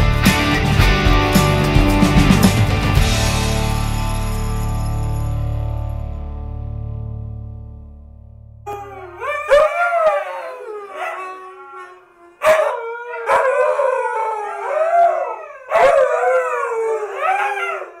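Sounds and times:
dogs howling together: 0:08.7 - 0:18.0.

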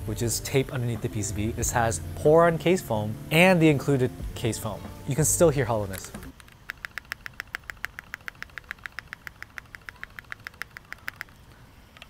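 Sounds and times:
rapid mechanical keyboard typing: 0:05.8 - 0:12.0.

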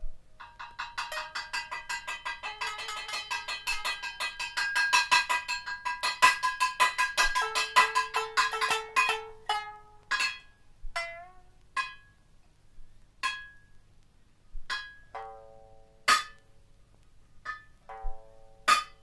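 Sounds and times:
plucked lute notes: 0:00.4 - 0:12.3, 0:13.2 - 0:13.8, 0:14.6 - 0:16.6, 0:17.4 - 0:19.0
strikes on a small frying pan: 0:16.1 - 0:16.4, 0:17.4 - 0:19.0.

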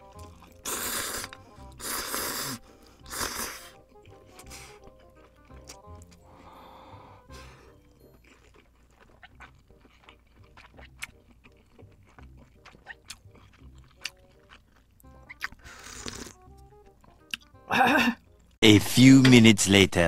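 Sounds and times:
breathy exhale: 0:06.2 - 0:07.8
lip-smacking and chewing clicks: 0:07.7 - 0:17.5.

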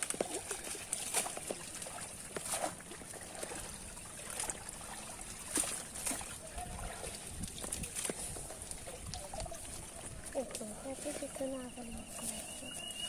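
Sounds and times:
muddy water splashing: 0:00.0 - 0:13.0
water dripping: 0:00.0 - 0:13.0.

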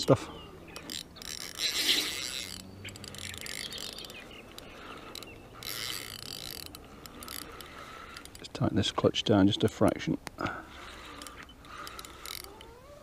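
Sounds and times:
fishing reel ticking and whirring: 0:00.6 - 0:08.5, 0:10.8 - 0:13.0.

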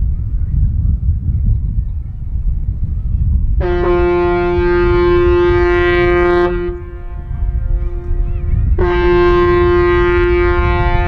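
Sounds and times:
low rumble: 0:00.0 - 0:11.0
ship's horn blasts: 0:03.6 - 0:11.0.

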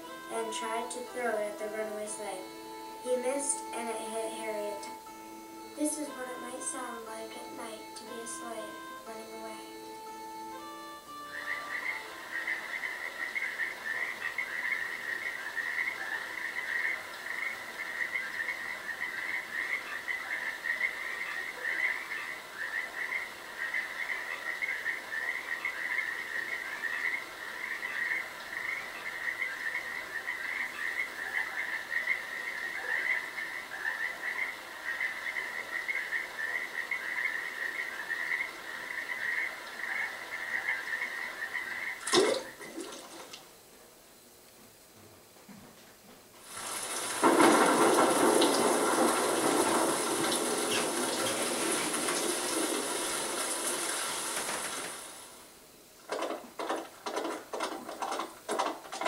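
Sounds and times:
frogs calling: 0:00.0 - 0:44.9, 0:46.4 - 0:59.0.

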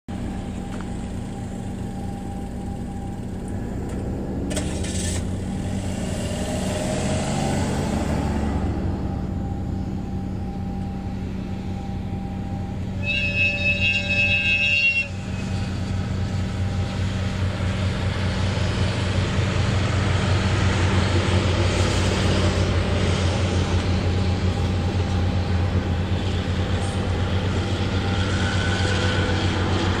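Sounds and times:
locomotive engine droning: 0:00.1 - 0:30.0
train wheels rumbling on rails: 0:00.1 - 0:30.0
train horn: 0:12.2 - 0:16.4, 0:26.2 - 0:30.0.

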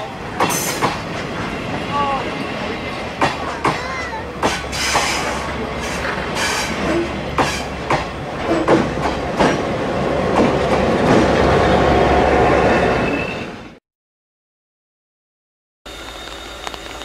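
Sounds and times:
diesel locomotive rumble: 0:00.0 - 0:13.2
train wheels clicking over rail joints: 0:00.3 - 0:01.9, 0:02.7 - 0:11.5.

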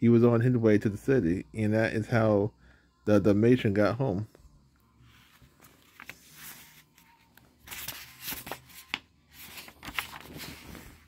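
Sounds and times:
book pages rustling: 0:05.0 - 0:11.0.

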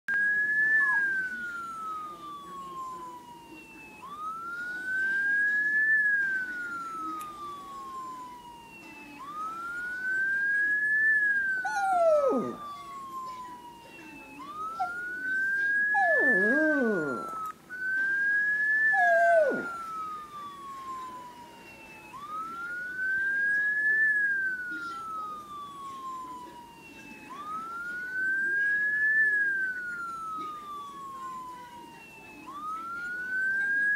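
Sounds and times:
police siren wailing: 0:00.1 - 0:33.9
dog howling: 0:11.6 - 0:12.8, 0:15.8 - 0:17.4, 0:18.9 - 0:19.8.

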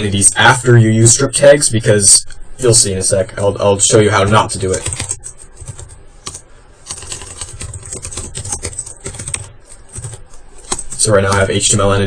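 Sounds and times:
computer keyboard typing: 0:04.3 - 0:11.8.

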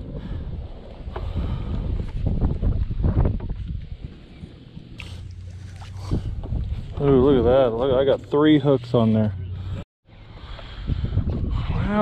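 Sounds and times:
wind buffeting microphone: 0:00.0 - 0:08.2, 0:09.6 - 0:12.0.

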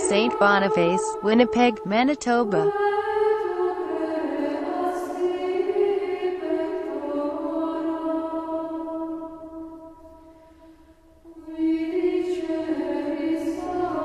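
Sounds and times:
choral voices chanting: 0:00.0 - 0:14.0.

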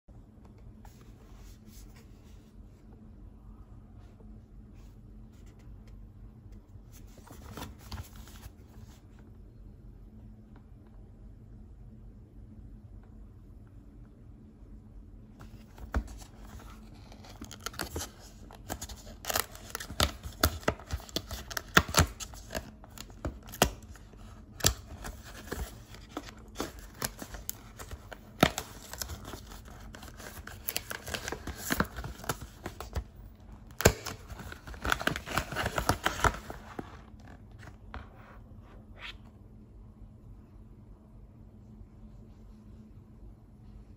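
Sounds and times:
cardboard box crackling and tearing: 0:17.0 - 0:23.8.

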